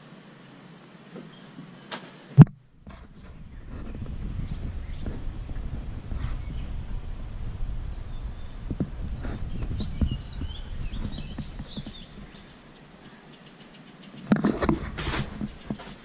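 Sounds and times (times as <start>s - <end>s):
faint bird chirps: 1.3s - 14.3s
wind rumble on microphone: 2.4s - 13.0s, 14.2s - 16.0s
loud rustling scrape: 2.8s - 12.7s, 14.2s - 16.0s.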